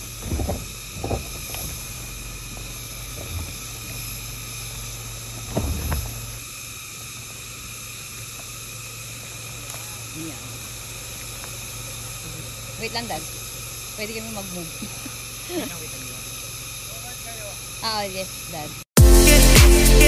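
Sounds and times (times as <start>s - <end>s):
dull thumps: 0.0s - 6.4s
high insect drone: 0.0s - 20.0s
vehicle engine humming: 0.0s - 20.0s.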